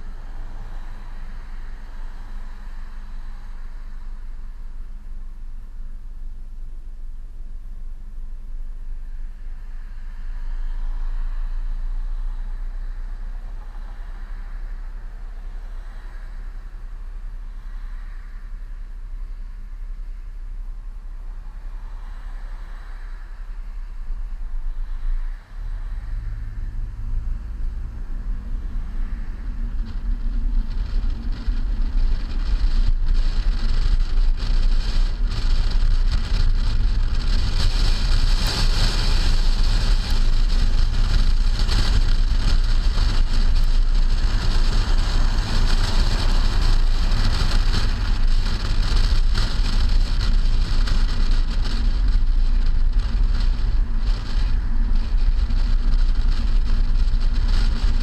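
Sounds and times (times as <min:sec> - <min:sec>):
tyre and road noise: 0:00.0 - 0:58.0
wind buffeting: 0:24.8 - 0:58.0.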